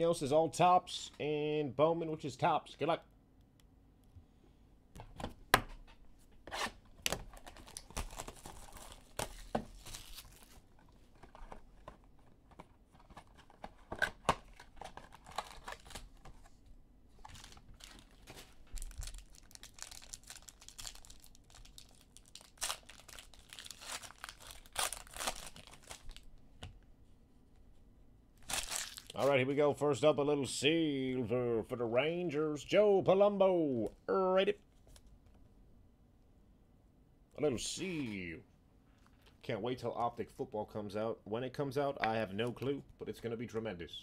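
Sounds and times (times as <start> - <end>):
wrappers tearing and crinkling: 7.3 - 11.5, 13.4 - 16.2, 17.2 - 26.3, 28.4 - 29.3.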